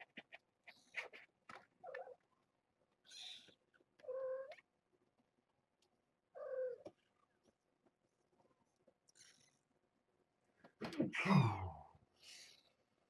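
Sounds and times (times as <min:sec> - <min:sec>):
cats meowing: 0:03.1 - 0:04.6, 0:06.4 - 0:06.9.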